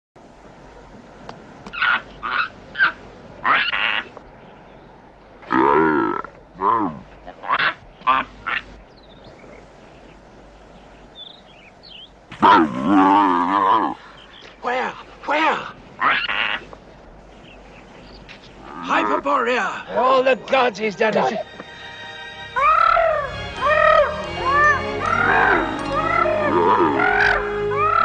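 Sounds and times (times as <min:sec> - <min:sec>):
baboon barking and screeching: 0:01.7 - 0:04.1, 0:05.5 - 0:08.7, 0:16.0 - 0:16.7, 0:22.6 - 0:28.0
baboon grunting call: 0:01.7 - 0:04.1, 0:05.4 - 0:08.7, 0:12.3 - 0:14.1, 0:16.0 - 0:16.7, 0:18.6 - 0:20.0, 0:22.6 - 0:28.0.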